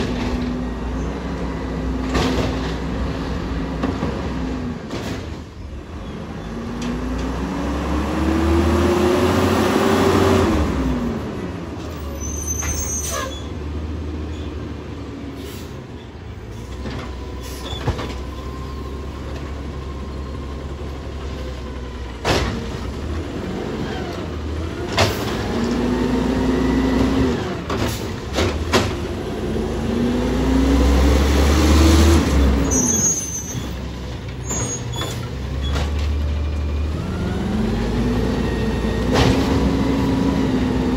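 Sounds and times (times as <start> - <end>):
garbage truck diesel engine revving: 0.0 - 15.9, 17.0 - 40.9
air brake hisses: 15.4 - 15.8.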